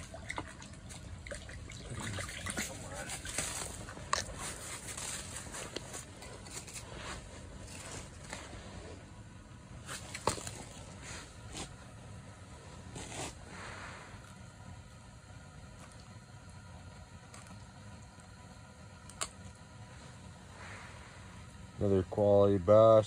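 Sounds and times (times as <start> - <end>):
snow and slush crunching: 1.9 - 9.0
handling scrapes: 2.5 - 9.1, 12.7 - 14.3.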